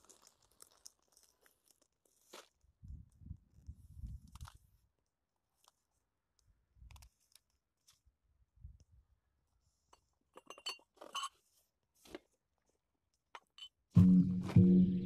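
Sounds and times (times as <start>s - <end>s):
glass clinking: 10.4s - 11.3s.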